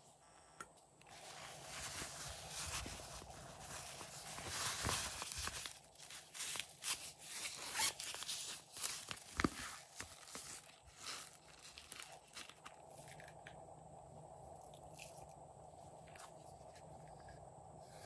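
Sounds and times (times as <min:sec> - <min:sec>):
sequin pouch rustling: 0:01.1 - 0:13.6.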